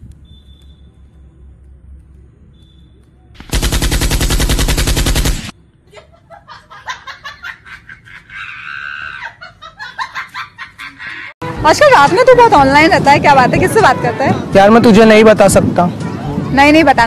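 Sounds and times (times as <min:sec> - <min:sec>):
rapid automatic gunfire: 0:03.4 - 0:05.5.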